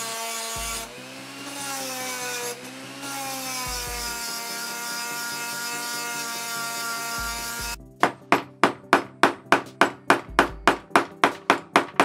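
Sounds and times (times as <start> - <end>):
power tool motor whining: 0.0 - 7.8.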